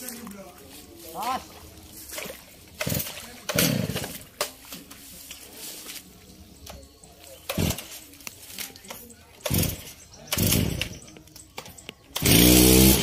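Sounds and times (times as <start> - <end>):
chainsaw engine turning over: 2.8 - 4.1, 9.4 - 11.0, 12.2 - 13.0.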